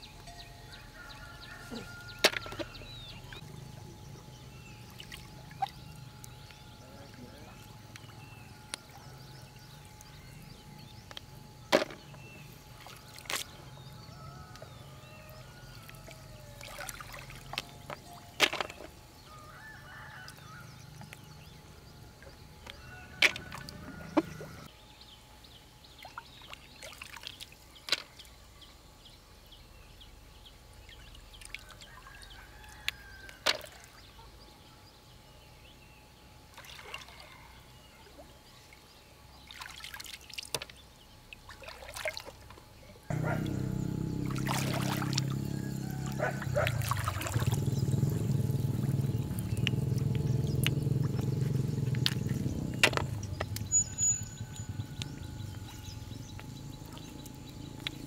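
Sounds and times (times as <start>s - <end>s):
steady low sound: 43.1s - 58.0s
water dripping: 43.1s - 58.0s
hands splashing in shallow water: 44.2s - 45.4s, 46.0s - 53.7s.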